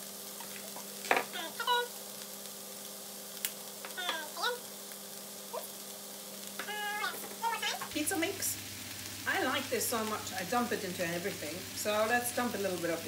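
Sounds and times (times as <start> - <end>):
food sizzling in a pan: 0.0 - 13.0
steady low hum: 7.4 - 13.0.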